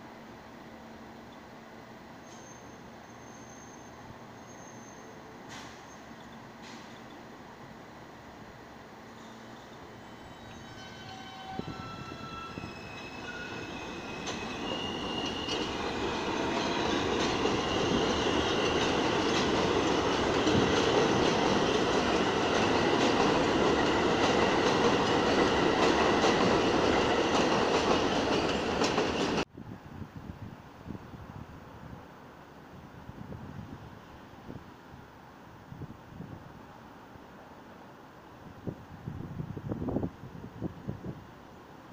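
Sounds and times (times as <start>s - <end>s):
wheels rumbling on rail: 0.4s - 31.3s
subway train motor whine: 8.8s - 29.4s.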